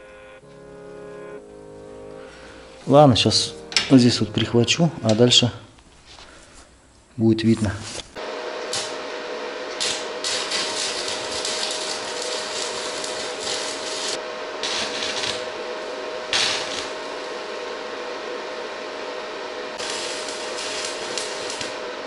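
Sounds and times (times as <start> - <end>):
arc welding crackling: 7.5 - 22.0.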